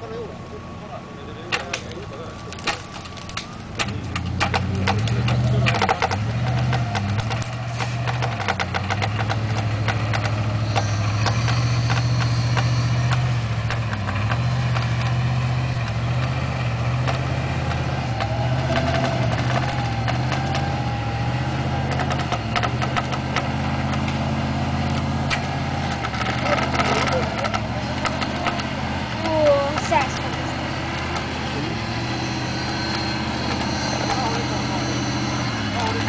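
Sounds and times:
engine running at low revs: 0.0 - 36.0
clicks and cracks: 1.6 - 10.4
faint whine: 29.4 - 36.0.

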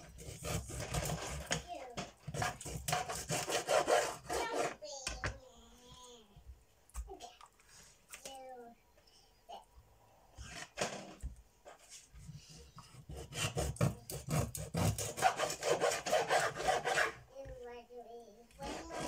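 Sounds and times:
knife sawing through fish: 0.0 - 1.6, 2.3 - 4.8, 13.0 - 17.2, 18.6 - 19.0.

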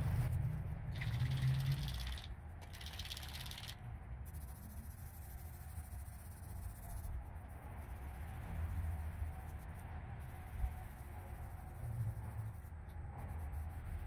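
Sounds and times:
spray can ball rattling: 0.9 - 3.8.

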